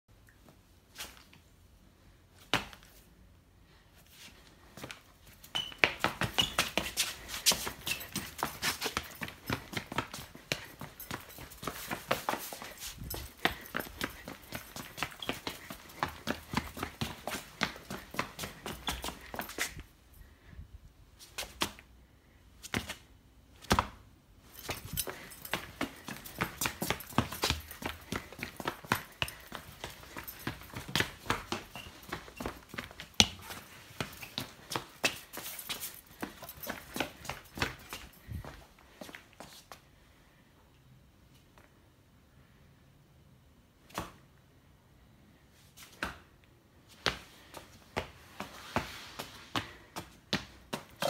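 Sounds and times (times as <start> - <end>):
running steps on tiled floor: 4.3 - 20.5, 23.6 - 39.8, 46.9 - 51.0.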